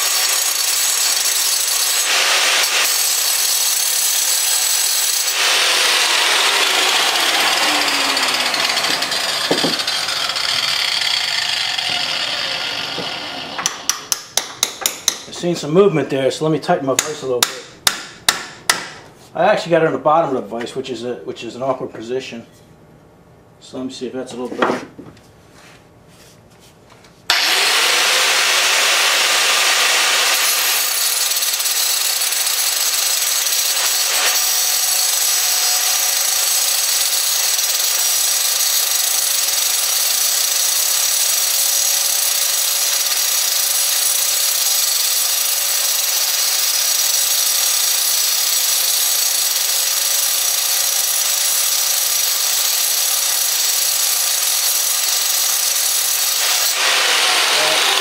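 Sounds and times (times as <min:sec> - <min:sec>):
angle grinder cutting steel: 0:00.0 - 0:14.3, 0:27.3 - 0:58.0.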